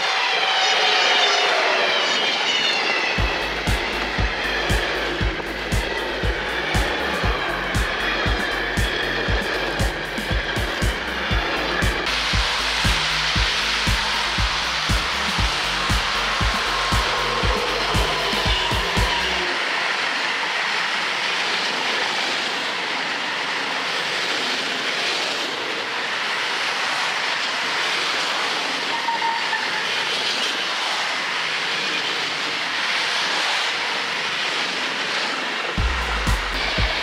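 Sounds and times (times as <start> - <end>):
freight train wheels rumbling: 2.4 - 37.0.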